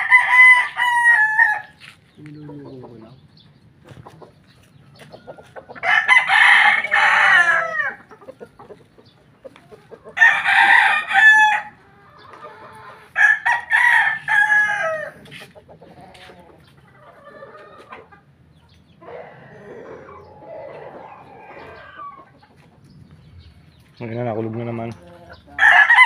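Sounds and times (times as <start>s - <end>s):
roosters crowing: 0.0s - 3.2s, 3.8s - 26.0s.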